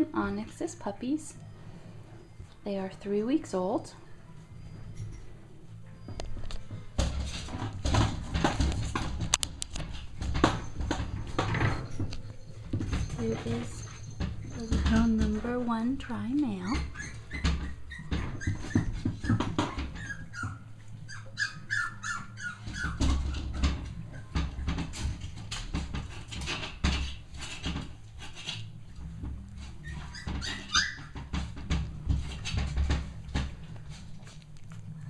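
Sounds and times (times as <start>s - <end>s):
rustling and knocking: 6.0s - 20.8s, 21.6s - 35.0s
puppies whimpering: 10.3s - 24.9s, 29.6s - 31.6s.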